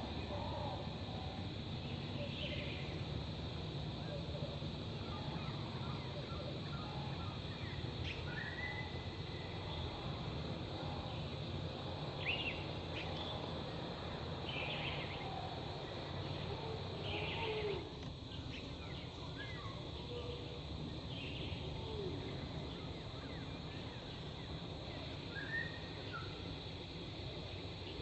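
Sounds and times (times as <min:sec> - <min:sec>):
whistled bird calls: 0:25.3 - 0:26.4.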